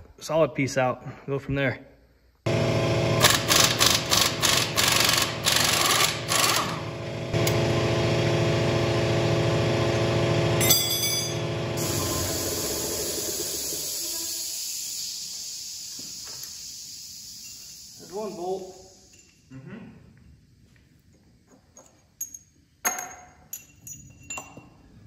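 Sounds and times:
steady machine hum: 2.5s - 19.1s
pneumatic impact wrench rattling: 3.2s - 6.9s.

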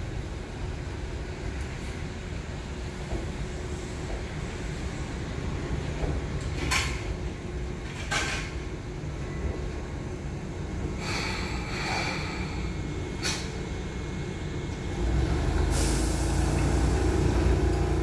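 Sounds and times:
train wheels rumbling: 0.0s - 18.0s
brake air hisses: 11.0s - 13.6s, 15.7s - 16.6s
steady brake hiss: 11.0s - 13.6s, 15.7s - 16.6s.

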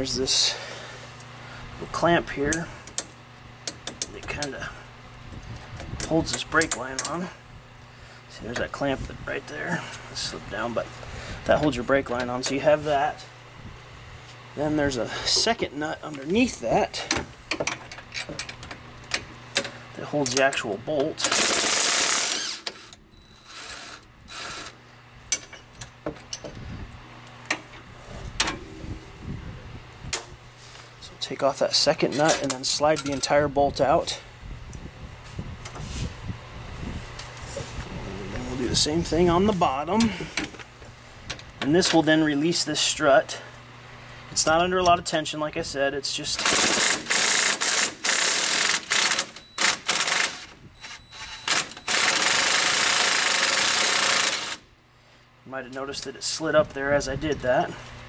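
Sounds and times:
impact wrench hammering: 21.2s - 22.9s, 51.5s - 54.6s.

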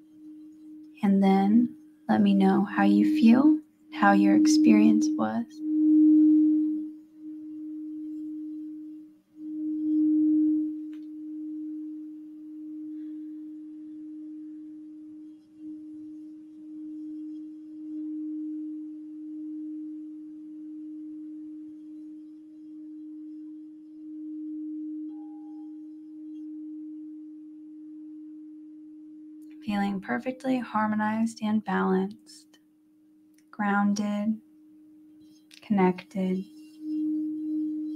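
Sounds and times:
crystal singing bowl humming: 0.0s - 37.9s
faint higher ring: 3.2s - 29.6s, 36.4s - 37.9s.

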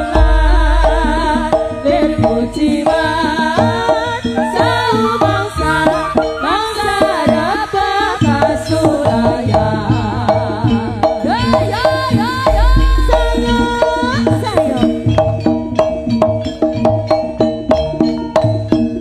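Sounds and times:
gliding melody line: 0.0s - 8.9s, 12.3s - 15.0s
repeating pitched tones: 0.0s - 9.2s, 11.3s - 15.0s
deep bass boom: 0.1s - 2.4s, 12.5s - 13.6s.

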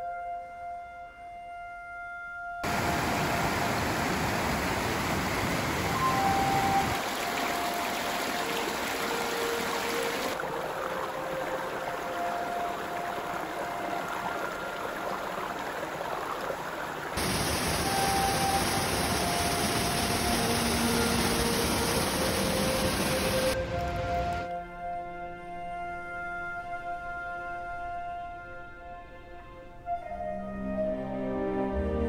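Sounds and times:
rushing creek water: 2.6s - 24.5s.

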